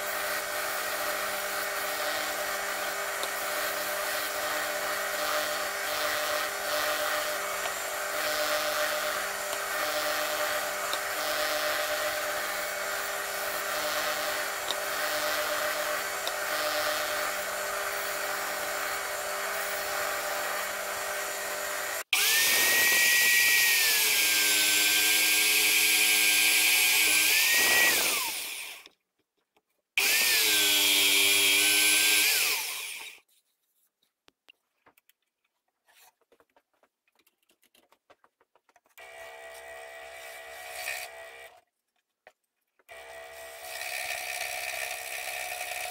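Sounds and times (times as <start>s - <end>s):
power drill boring into wood: 0.0s - 28.9s, 30.0s - 33.2s, 39.0s - 41.6s, 42.9s - 45.9s
spindle sander humming: 0.0s - 28.9s, 30.0s - 33.2s.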